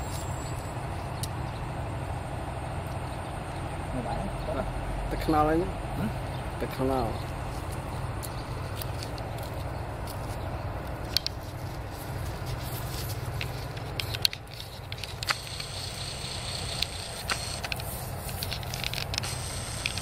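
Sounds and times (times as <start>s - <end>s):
footsteps in dry grass: 7.2s - 15.9s, 17.1s - 19.5s.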